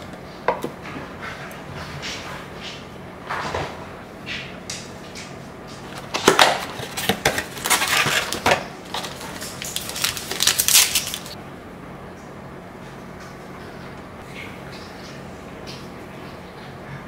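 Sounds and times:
paper packaging crinkling: 5.8 - 11.4
wrapper torn open by hand: 6.3 - 11.4.

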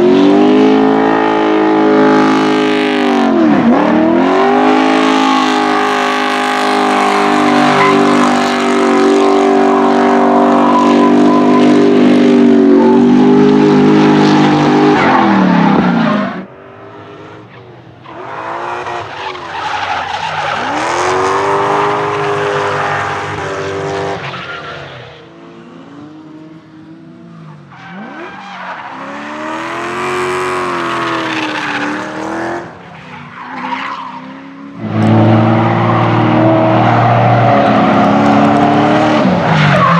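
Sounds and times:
car engines revving: 0.0 - 39.9
tyre squeal: 4.9 - 13.7.

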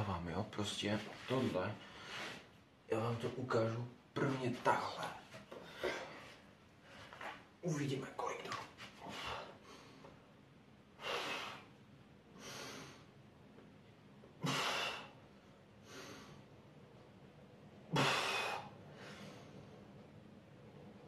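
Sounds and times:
person breathing hard: 9.0 - 10.2, 11.0 - 11.7, 17.9 - 19.7.

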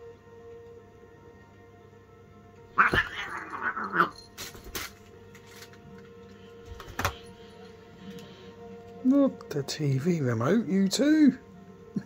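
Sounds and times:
soft background music: 0.0 - 12.0
cat yowling angrily: 2.8 - 4.2.

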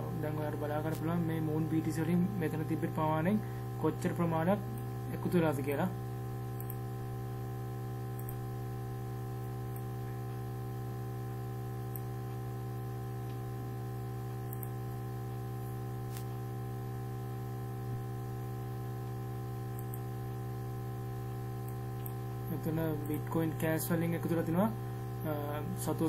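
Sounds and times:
electrical mains hum: 0.0 - 26.0
computer mouse clicks: 6.6 - 6.8, 8.2 - 8.4, 14.5 - 14.8, 19.7 - 20.1.

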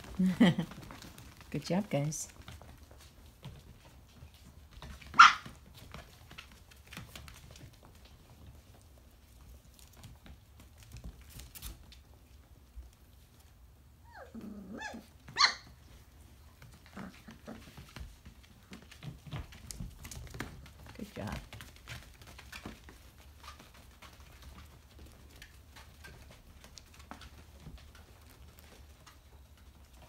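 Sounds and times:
puppy whining: 14.0 - 17.9
puppies yapping: 14.1 - 15.8.

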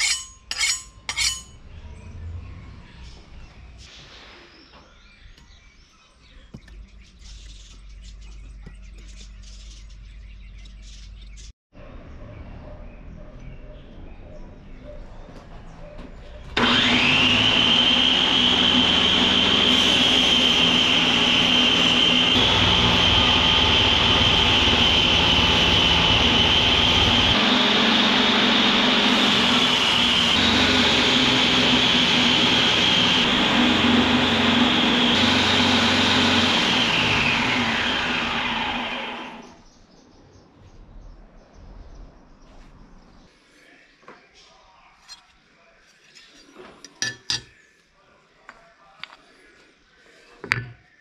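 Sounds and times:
belt grinder whining: 16.5 - 39.6.

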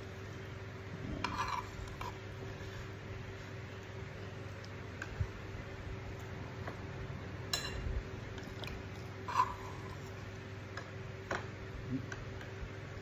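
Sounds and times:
steady low hum: 0.0 - 13.0
metal spoon clinking on plate: 7.5 - 7.9.

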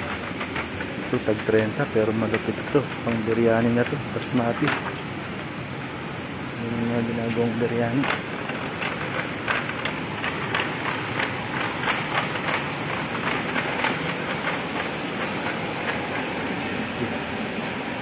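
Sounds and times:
steady background hiss: 0.0 - 18.0.

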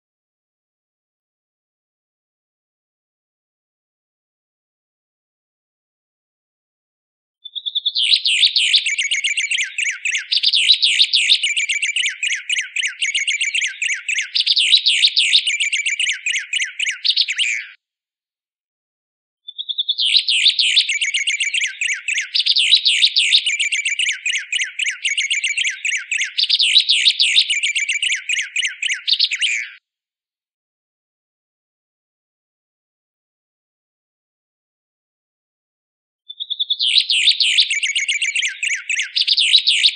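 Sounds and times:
bird chirping and whistling: 7.5 - 17.8, 19.5 - 29.8, 36.3 - 39.9.

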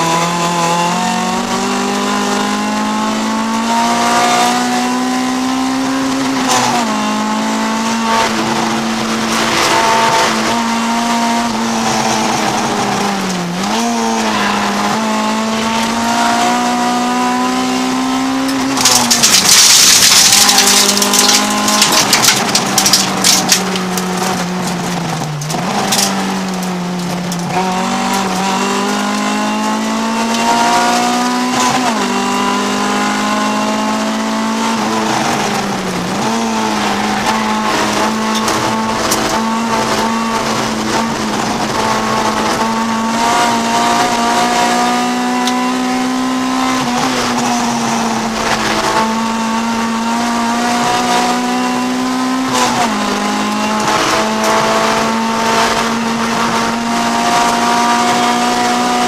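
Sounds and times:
car engine revving: 0.0 - 59.0
gravel rushing and clatter: 18.4 - 29.0.

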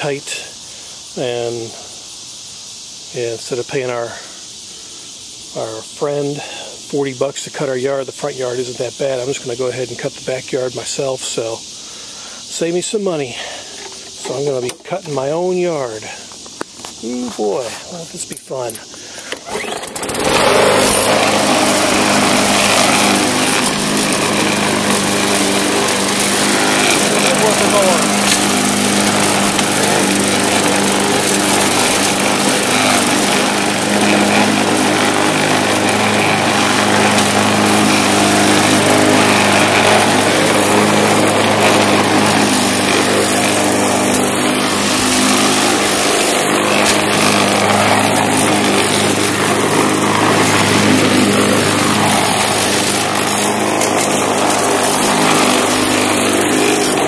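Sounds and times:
lawn mower engine cutting grass: 0.0 - 57.0.

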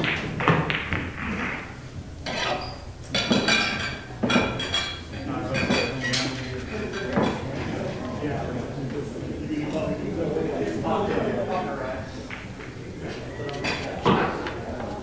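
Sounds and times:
faint voices: 4.0 - 15.0.

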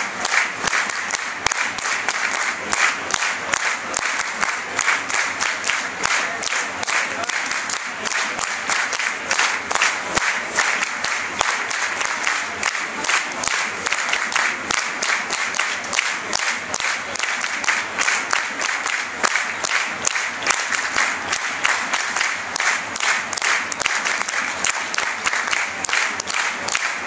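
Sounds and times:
crowd clapping: 0.0 - 27.0.

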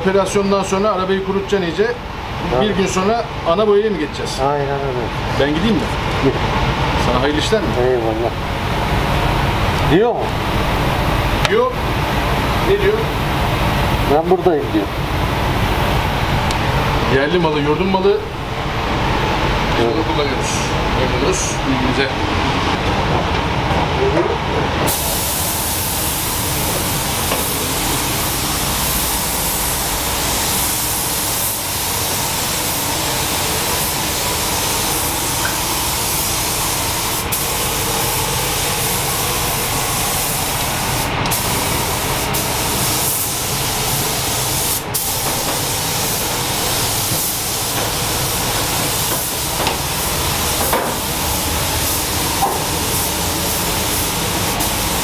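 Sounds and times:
paint spray gun hissing: 24.9 - 55.0.

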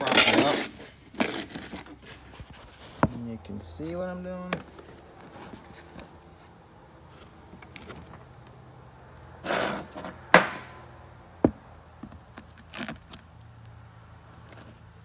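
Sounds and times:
scrape: 0.0 - 3.1.

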